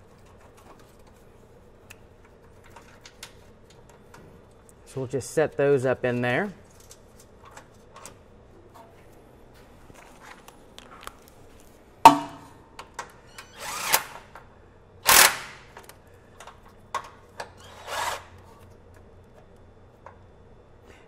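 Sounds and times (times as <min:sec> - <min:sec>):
impact wrench bursts: 0:13.5 - 0:14.3, 0:15.0 - 0:15.7.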